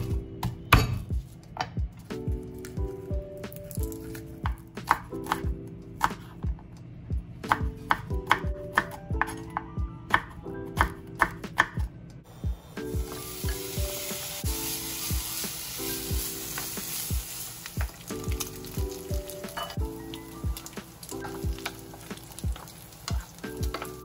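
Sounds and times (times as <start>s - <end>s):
soft background music: 0.0s - 24.0s
meat sizzling in a pan: 13.0s - 23.9s.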